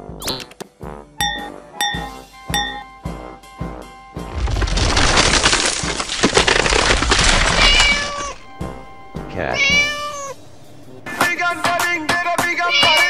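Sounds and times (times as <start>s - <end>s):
cartoon egg cracking: 4.4s - 8.4s
cat meowing: 7.3s - 8.5s, 9.4s - 10.4s, 12.4s - 13.0s.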